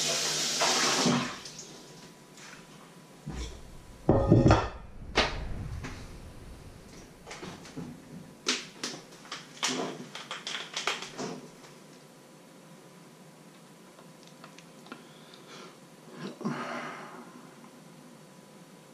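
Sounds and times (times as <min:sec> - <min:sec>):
bowl knocking on wooden board: 0:03.4 - 0:04.9.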